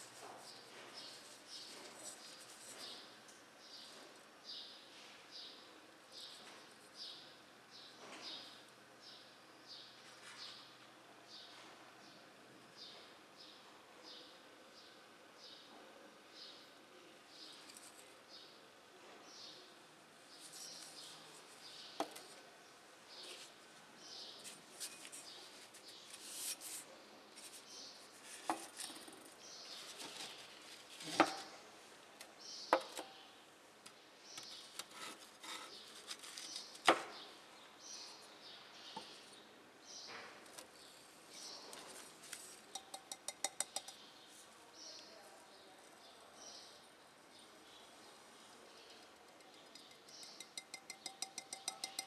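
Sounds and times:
light glass taps: 42.8s - 44.0s, 49.7s - 52.0s.

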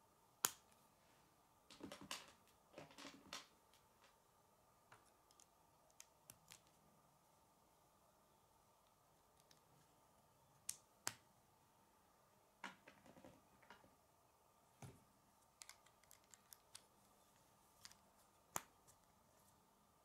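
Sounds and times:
plastic pieces clicking together: 15.6s - 16.8s.

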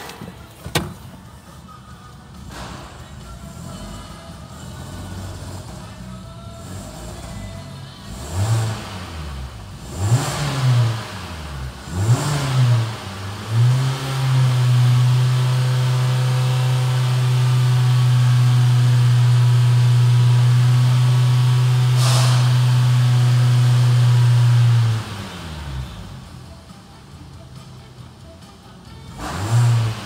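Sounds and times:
car engine revving: 3.4s - 26.4s, 29.1s - 30.0s
brief hiss: 22.0s - 22.5s.

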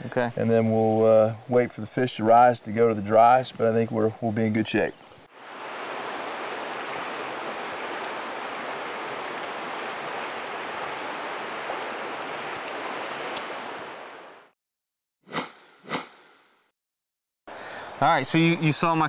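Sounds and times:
shallow stream rushing: 5.2s - 14.5s.

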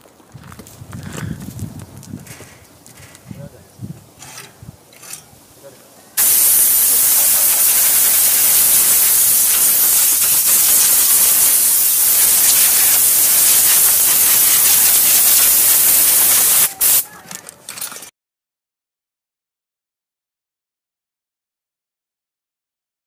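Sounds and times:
compressed air hissing: 6.2s - 17.1s.

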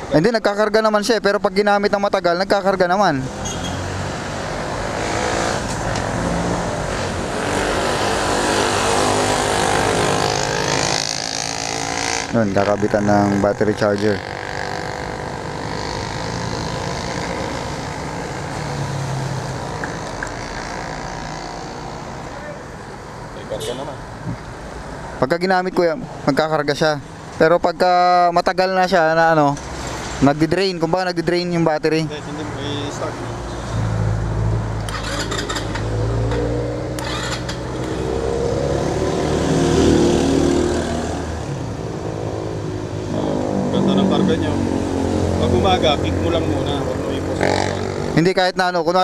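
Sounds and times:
vehicle engine passing: 3.2s - 23.0s, 32.1s - 48.4s.

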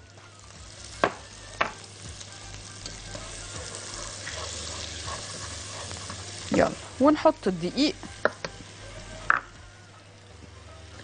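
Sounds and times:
butter sizzling in a pot: 0.0s - 11.0s
whisk stirring: 3.4s - 6.9s.

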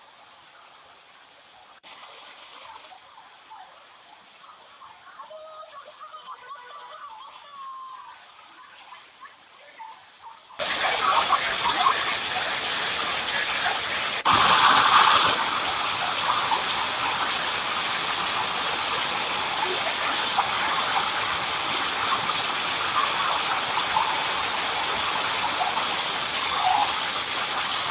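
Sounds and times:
harsh noise burst: 10.6s - 19.5s
floodwater rushing: 10.6s - 27.9s.

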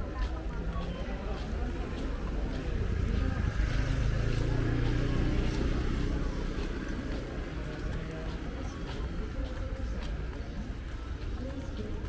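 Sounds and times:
vehicle engine passing by: 1.8s - 9.4s.

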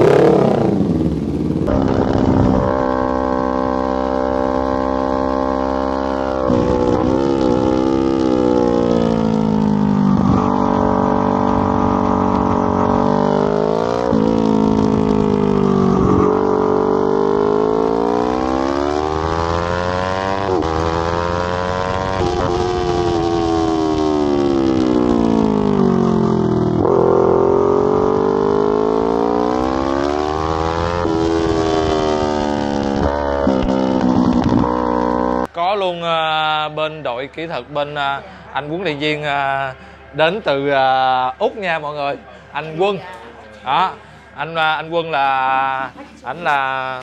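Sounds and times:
motorcycle engine revving: 0.0s - 35.6s.

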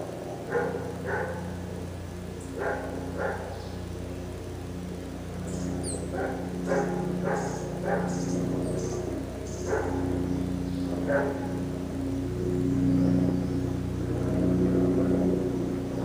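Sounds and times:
steady low hum: 0.0s - 16.0s
dog barking: 0.4s - 1.6s, 2.6s - 3.6s, 6.1s - 8.3s, 9.5s - 10.1s, 11.0s - 11.6s.

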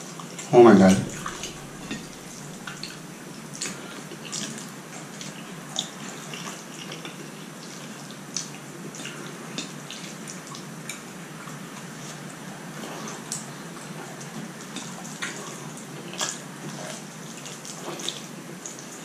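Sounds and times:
steady hiss: 0.5s - 4.9s
chewing noodles: 1.1s - 19.0s.

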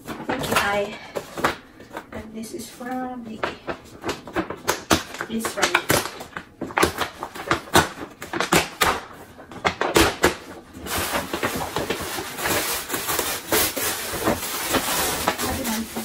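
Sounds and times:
paper gift bag rustling: 9.1s - 16.0s
tissue paper crinkling: 10.4s - 16.0s.

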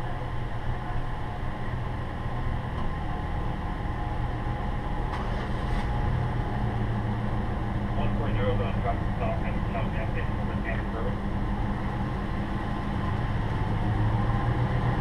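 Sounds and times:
vehicle engine idling: 0.0s - 15.0s.

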